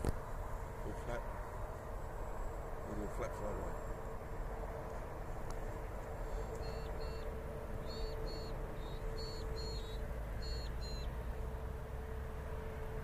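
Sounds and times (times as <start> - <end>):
bird chirping: 6.2 - 11.4.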